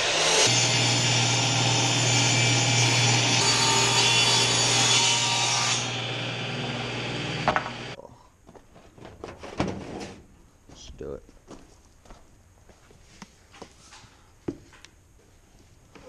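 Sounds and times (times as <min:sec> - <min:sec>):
table saw cutting wood: 0:00.0 - 0:08.0.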